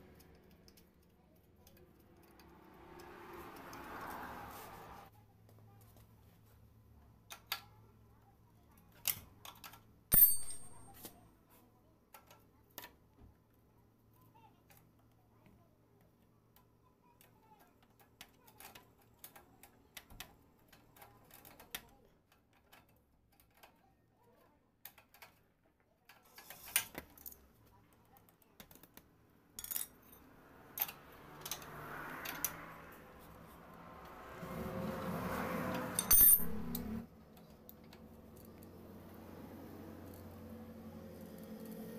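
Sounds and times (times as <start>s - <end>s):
metal tools clinking on bolts: 9.0s - 11.1s, 29.6s - 30.2s, 35.9s - 37.0s
sharp metallic clank: 10.1s - 11.0s, 36.0s - 37.0s.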